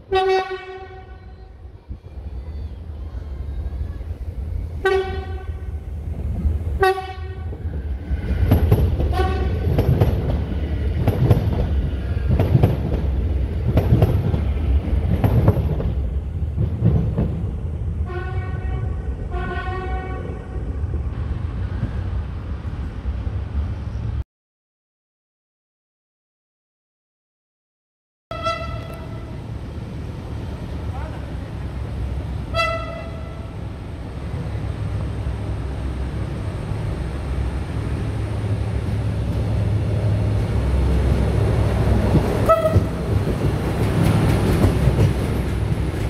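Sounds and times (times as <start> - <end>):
train passing with heavy rumble: 0.0 - 24.2, 28.3 - 46.0
train horn blasts: 0.1 - 1.6, 4.8 - 5.8, 6.8 - 7.6, 9.1 - 9.7, 18.0 - 20.4, 28.3 - 29.4, 32.5 - 33.6, 42.4 - 43.0.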